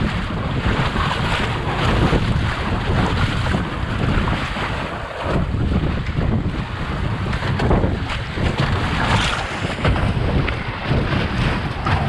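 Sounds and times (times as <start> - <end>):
sea water rushing and splashing: 0.0 - 12.0
wind buffeting microphone: 0.0 - 12.0.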